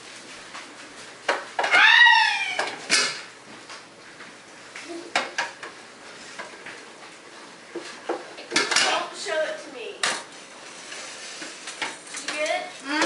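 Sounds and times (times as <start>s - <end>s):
metal pots and pans clattering: 8.1s - 9.0s.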